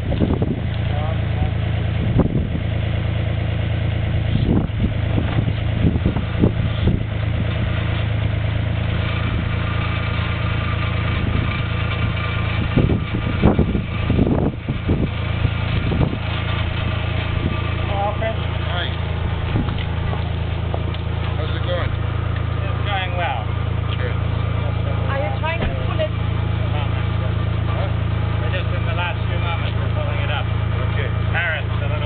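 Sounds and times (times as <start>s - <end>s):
diesel engine running: 0.0s - 32.0s
knocks and clunks: 25.4s - 26.0s.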